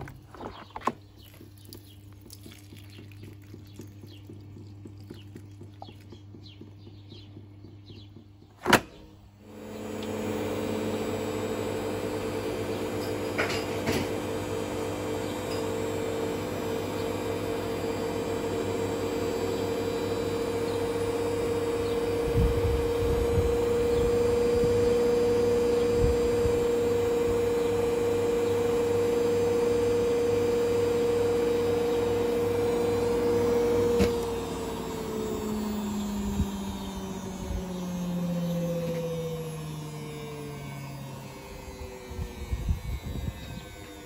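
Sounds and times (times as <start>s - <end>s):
washing machine spinning: 0.0s - 8.6s, 9.2s - 44.0s.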